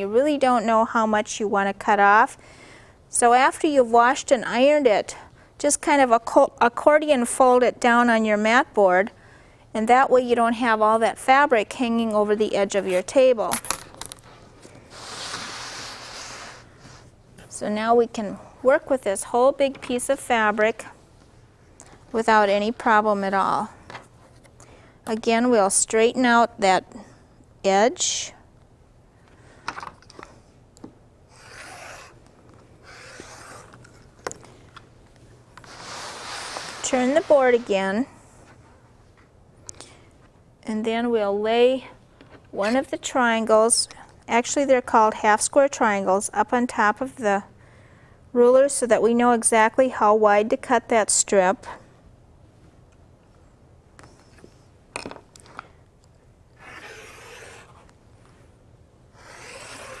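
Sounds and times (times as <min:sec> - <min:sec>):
rotary cutter cutting fabric: 0:31.3 - 0:32.2, 0:32.8 - 0:34.0, 0:56.6 - 0:57.9, 0:59.1 - 1:00.0.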